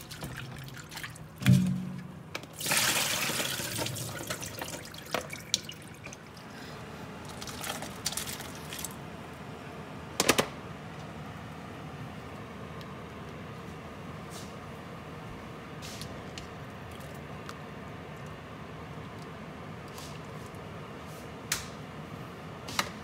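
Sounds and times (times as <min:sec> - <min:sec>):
water pouring through colander into sink: 0:00.0 - 0:06.4, 0:07.3 - 0:08.9.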